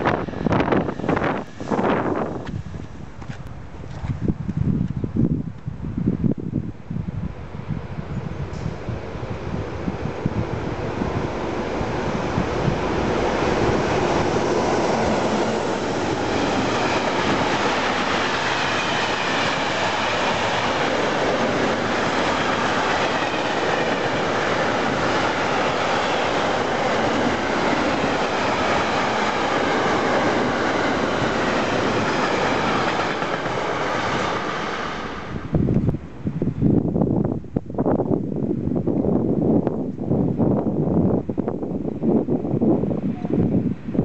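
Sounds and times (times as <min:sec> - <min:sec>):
freight train passing: 0:00.0 - 0:03.9, 0:06.8 - 0:44.0.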